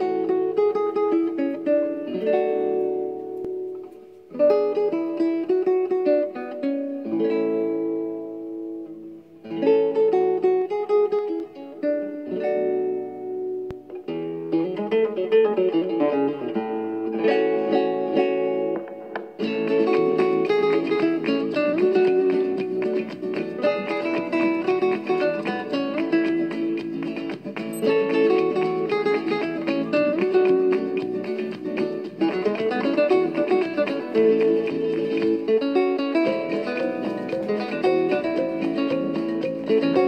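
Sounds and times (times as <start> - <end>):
flamenco guitar playing: 0.0 - 40.0.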